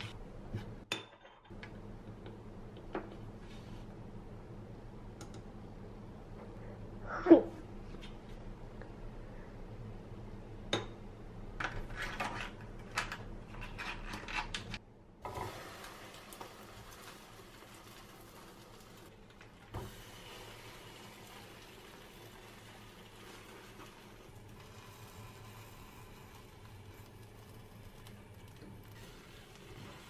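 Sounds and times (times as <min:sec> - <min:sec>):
toast sizzling in frying pan: 0:15.3 - 0:30.0.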